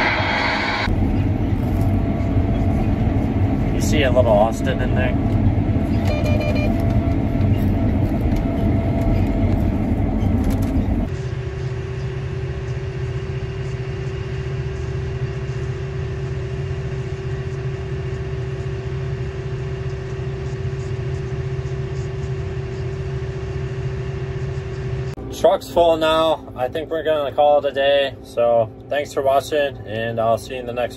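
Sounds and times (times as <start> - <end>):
combine harvester running: 0.0 - 14.4
steady hum: 0.0 - 30.9.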